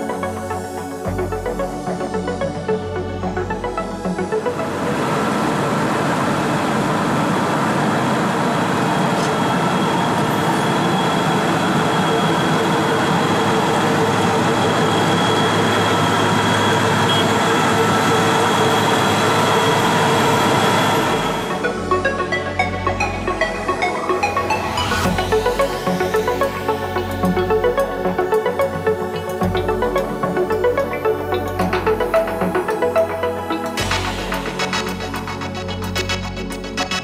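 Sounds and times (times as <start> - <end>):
constant machine whine: 0.0 - 37.0
road milling machine grinding: 3.4 - 22.4.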